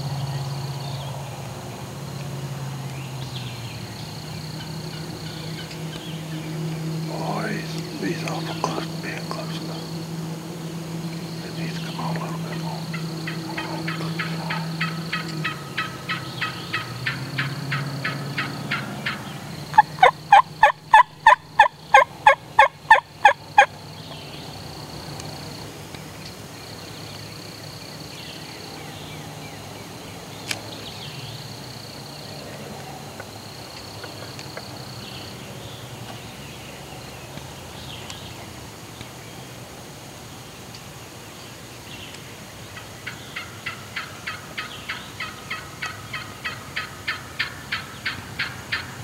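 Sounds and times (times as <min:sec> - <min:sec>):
wild turkey yelping: 0:04.6 - 0:23.7, 0:42.8 - 0:48.9.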